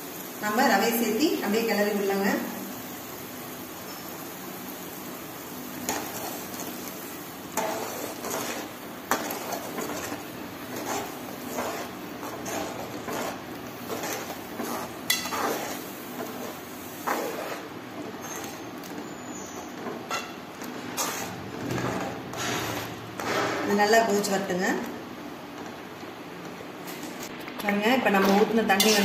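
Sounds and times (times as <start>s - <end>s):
boiling water bubbling: 4.5s - 23.4s
wooden spatula scraping a pan: 5.8s - 23.8s.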